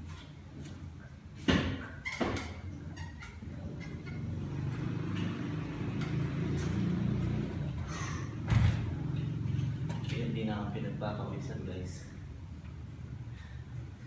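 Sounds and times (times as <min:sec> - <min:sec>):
exercise bike whirring: 0:02.8 - 0:10.5.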